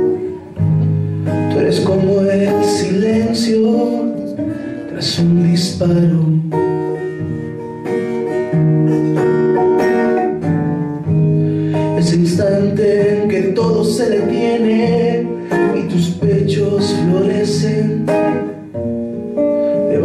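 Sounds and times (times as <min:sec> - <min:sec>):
acoustic guitar: 0:00.0 - 0:20.0
man singing: 0:01.3 - 0:07.1, 0:11.6 - 0:18.7, 0:19.7 - 0:20.0.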